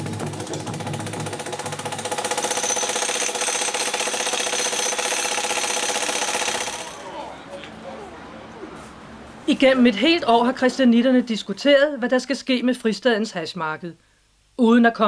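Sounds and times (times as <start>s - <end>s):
demolition hammer breaking concrete: 0.0s - 7.0s.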